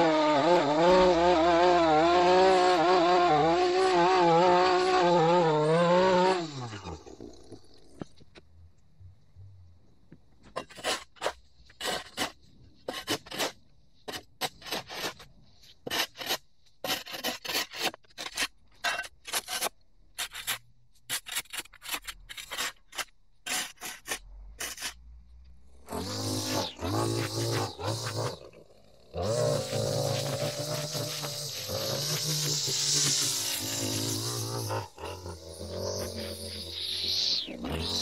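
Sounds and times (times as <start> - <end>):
shovel scraping on concrete: 10.6 - 25.0, 25.9 - 38.0.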